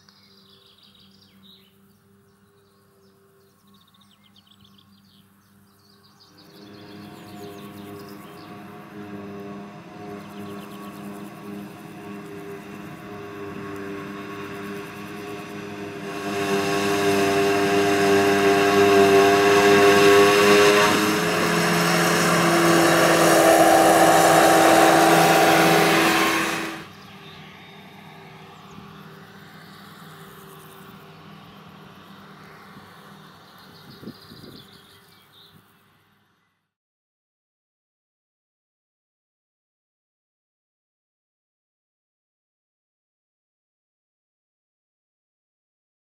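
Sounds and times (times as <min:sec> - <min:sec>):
engines whining under load: 0:06.2 - 0:35.2
chopped grass rushing hiss: 0:06.4 - 0:27.0.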